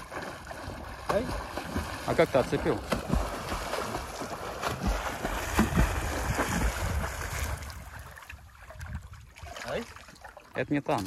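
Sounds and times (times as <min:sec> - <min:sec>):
swimmer splashing in water: 0:00.0 - 0:07.6
wind on microphone: 0:04.8 - 0:09.6.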